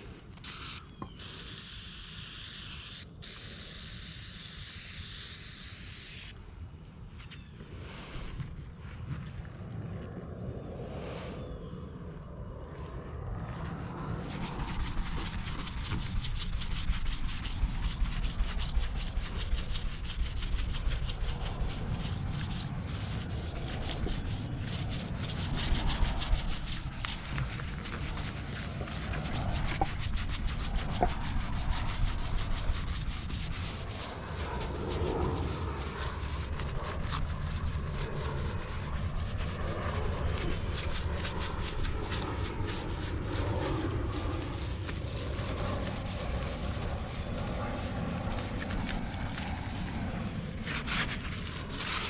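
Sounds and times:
sponge scrubbing metal panel: 14.1 - 52.0.

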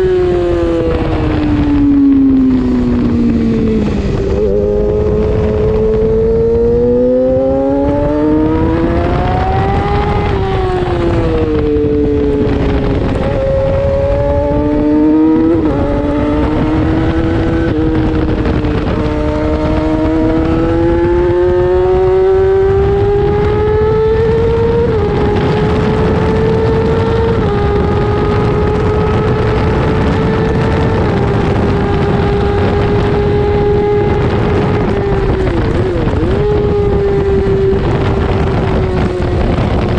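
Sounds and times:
motorcycle engine accelerating: 0.0 - 39.9
wind rush: 0.0 - 39.9.

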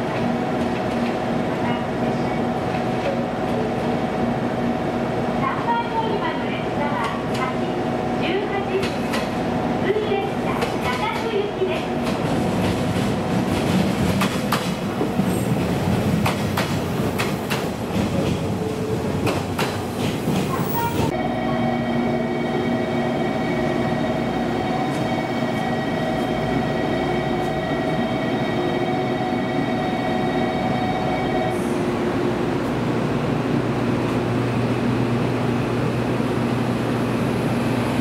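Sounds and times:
train wheels clicking over rail joints: 12.0 - 18.6, 19.2 - 21.1.

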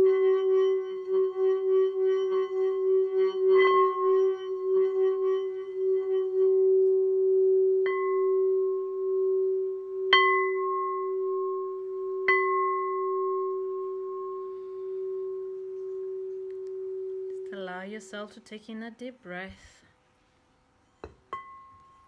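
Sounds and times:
stick rubbing bowl rim: 0.0 - 7.6, 14.5 - 18.3
singing bowl ringing: 0.0 - 18.4, 21.3 - 22.0.

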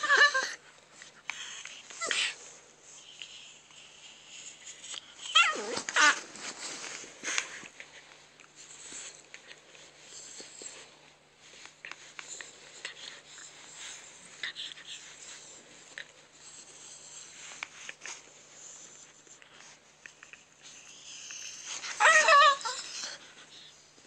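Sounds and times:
bedsheets rustling: 5.5 - 7.6.

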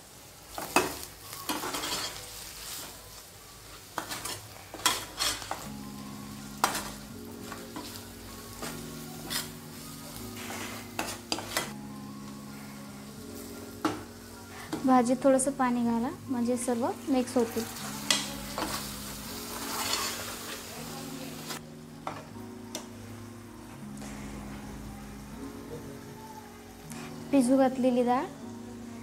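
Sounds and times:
food sizzling: 0.0 - 29.0
spatula scraping a pan: 1.5 - 2.9, 4.0 - 5.7, 6.5 - 8.0, 8.6 - 11.8, 17.5 - 20.7.

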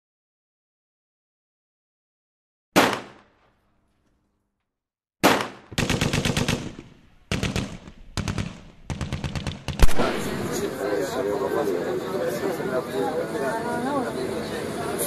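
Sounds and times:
automatic gunfire bursts: 2.8 - 3.2, 5.2 - 10.6
single gunshot report: 2.8 - 3.6, 5.2 - 5.9, 9.6 - 10.7.

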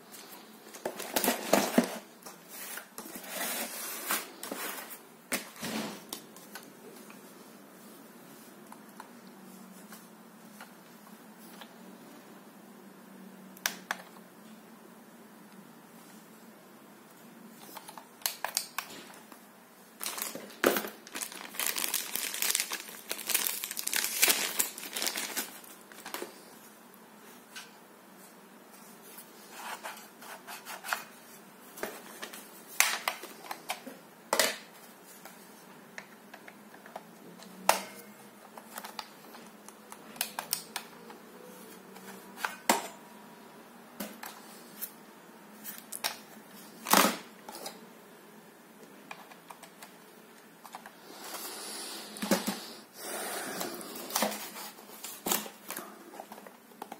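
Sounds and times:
plastic bag crinkling: 20.0 - 26.2.

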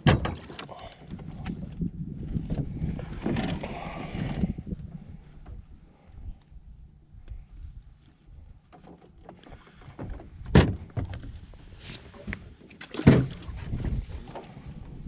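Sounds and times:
loud knocks on boat: 10.4 - 11.2, 13.0 - 13.5.

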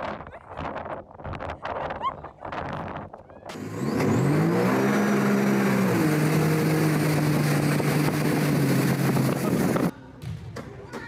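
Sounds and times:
boat engine accelerating: 3.5 - 9.9
rush of wind and water: 6.0 - 9.9.

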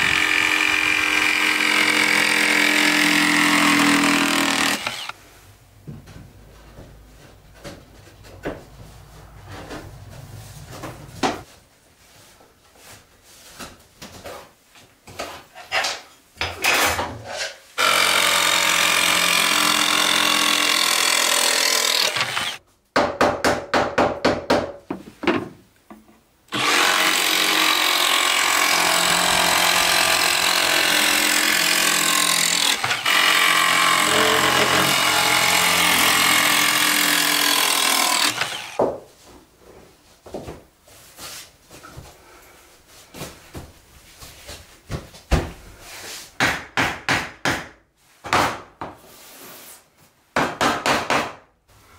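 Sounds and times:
jigsaw cutting plank: 0.0 - 5.2, 17.8 - 22.6, 26.5 - 38.8.

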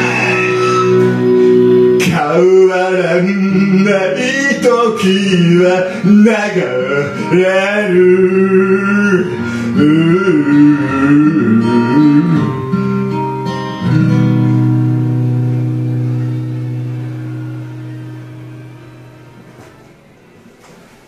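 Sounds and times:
guitar backing track: 0.0 - 21.0
man singing into a microphone: 2.0 - 12.7.

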